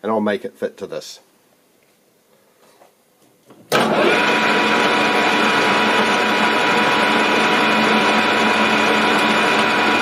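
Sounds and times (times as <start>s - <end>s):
metal lathe humming: 3.8s - 10.0s.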